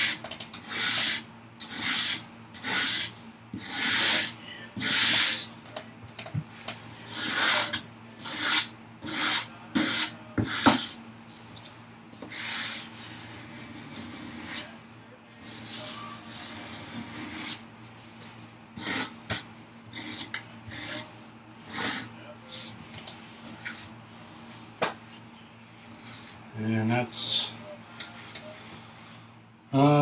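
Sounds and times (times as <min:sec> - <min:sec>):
hand sanding wood: 0:00.0 - 0:05.5, 0:07.1 - 0:11.0.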